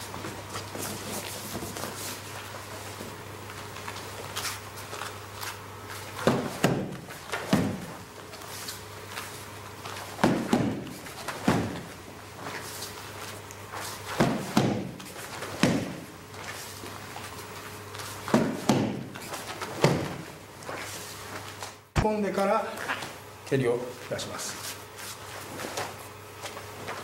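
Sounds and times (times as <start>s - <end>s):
punches thudding on kick shield: 6.2s - 7.9s, 10.2s - 11.8s, 14.2s - 15.0s, 15.6s - 16.0s, 18.3s - 19.1s.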